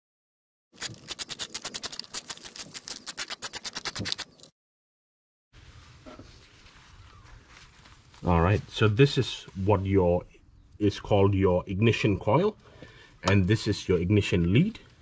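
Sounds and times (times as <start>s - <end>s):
faint handling noise: 5.6s - 9.9s.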